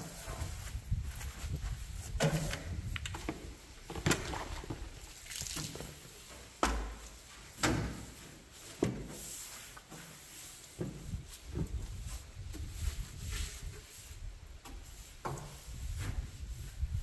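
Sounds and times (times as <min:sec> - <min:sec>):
brush scrubbing sheet metal: 0:07.2 - 0:17.0.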